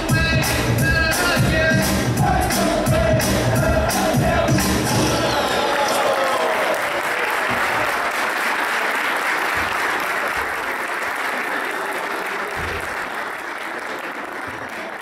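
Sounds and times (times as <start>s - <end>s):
audience applauding: 3.7s - 15.0s.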